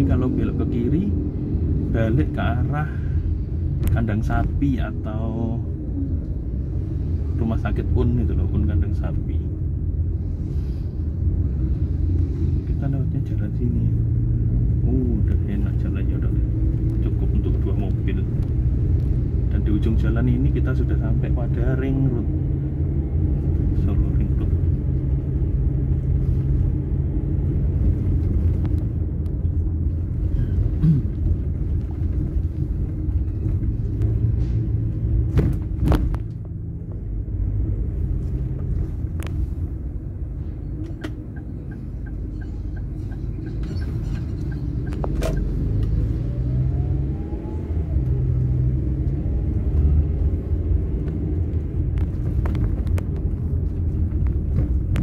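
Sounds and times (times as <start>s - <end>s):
road and engine rumble in car: 0.0s - 55.0s
faint rising engine note: 45.8s - 50.1s.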